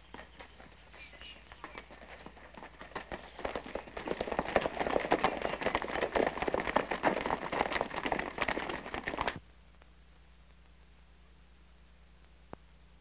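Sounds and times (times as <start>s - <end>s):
horses galloping on dirt: 0.0s - 9.4s.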